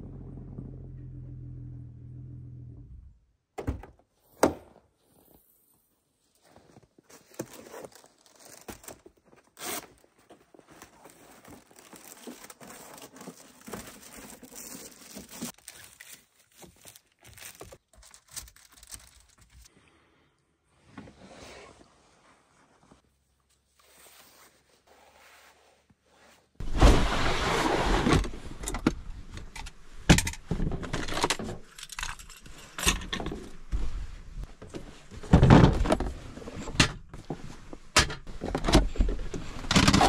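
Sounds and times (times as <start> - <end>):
low engine hum: 0.0 - 3.2
bags rustling and crinkling: 6.3 - 19.7.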